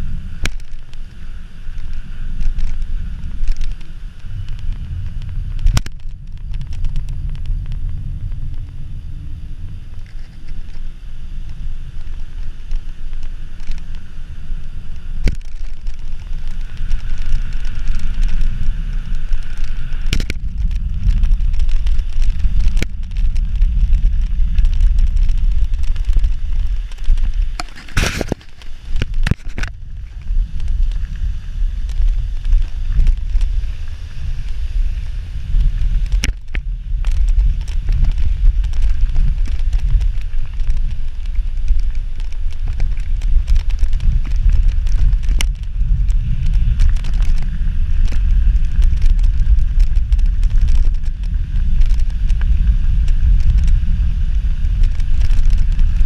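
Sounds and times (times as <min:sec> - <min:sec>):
bike rattling over bumps: 0:00.0 - 0:56.0
bike tyres rolling over path: 0:00.0 - 0:56.0
wind buffeting microphone: 0:00.0 - 0:56.0.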